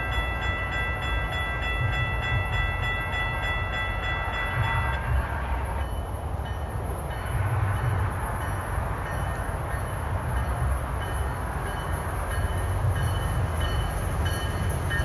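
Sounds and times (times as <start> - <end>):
railroad crossing bell ringing: 0.0 - 15.0
train rumble: 0.0 - 15.0.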